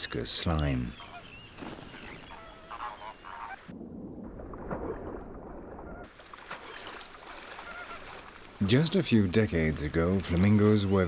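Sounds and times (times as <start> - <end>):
outdoor ambience: 0.0 - 11.0
flamingos honking: 0.8 - 3.8, 5.7 - 8.3.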